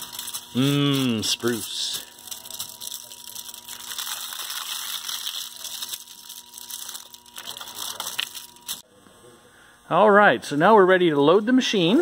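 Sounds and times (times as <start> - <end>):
aluminium foil crinkling: 0.0 - 8.8.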